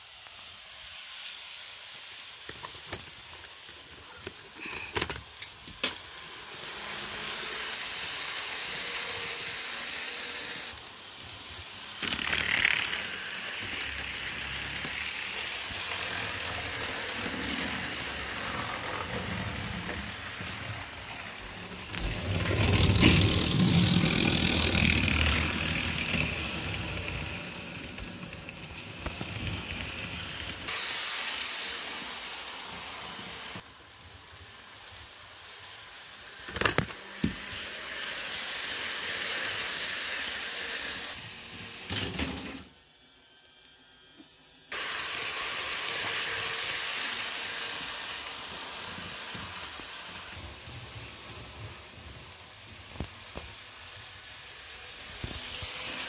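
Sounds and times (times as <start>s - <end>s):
model train rattling rumble: 11.0s - 30.7s.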